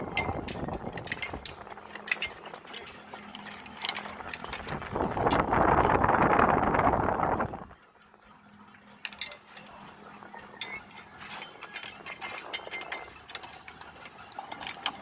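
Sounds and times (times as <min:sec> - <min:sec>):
chain links rattling: 0:00.0 - 0:05.4, 0:08.9 - 0:15.0.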